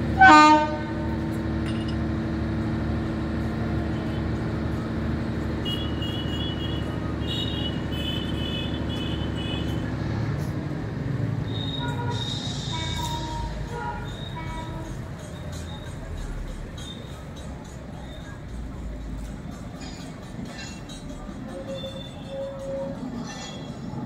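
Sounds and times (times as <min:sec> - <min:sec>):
locomotive low hum: 0:00.0 - 0:08.0.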